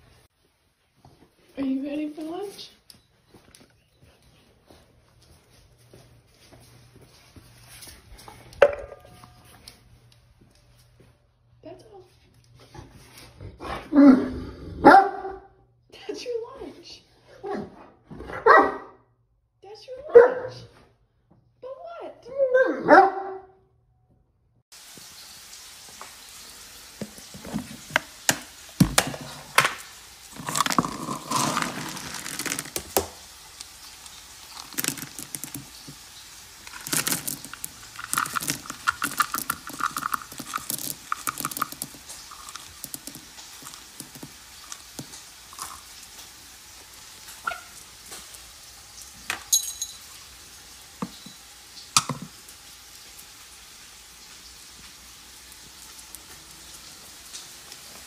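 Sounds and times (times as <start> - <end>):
dry kibble rattling in plastic bin: 30.3 - 33.0, 34.4 - 45.8.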